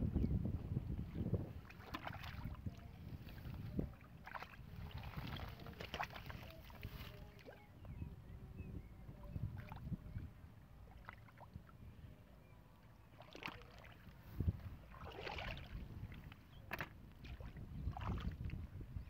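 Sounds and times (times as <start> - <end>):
muddy water sloshing and splashing: 1.5 - 7.9, 9.5 - 9.9, 10.9 - 11.8, 13.0 - 18.7.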